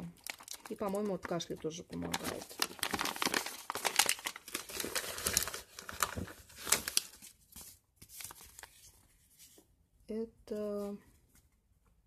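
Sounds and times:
plastic packaging crinkling: 0:00.0 - 0:08.9.

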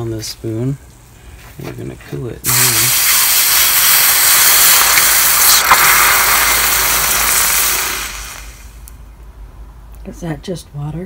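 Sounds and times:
hot metal hissing in water: 0:02.4 - 0:08.9
sharp crackle: 0:02.5 - 0:09.0.

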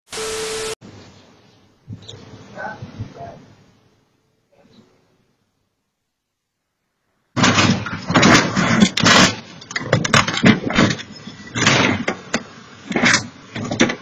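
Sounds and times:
car crashing and rolling: 0:07.4 - 0:14.0
debris clatter: 0:07.4 - 0:14.0.

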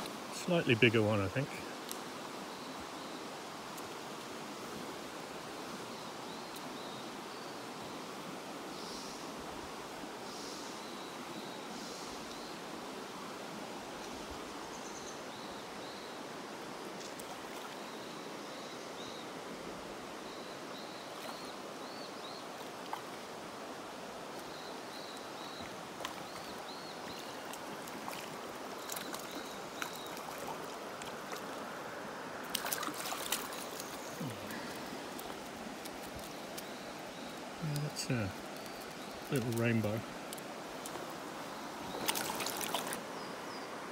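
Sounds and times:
river rushing over gravel: 0:00.0 - 0:06.4, 0:21.3 - 0:43.9
fish splashing in net: 0:32.5 - 0:34.0, 0:42.0 - 0:43.0.

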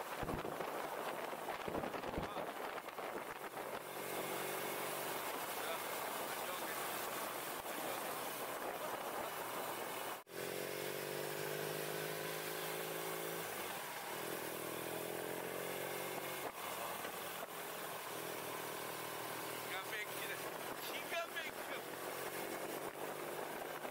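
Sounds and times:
wind rushing over microphone: 0:00.0 - 0:10.2
motorcycle engine accelerating: 0:00.1 - 0:23.9.

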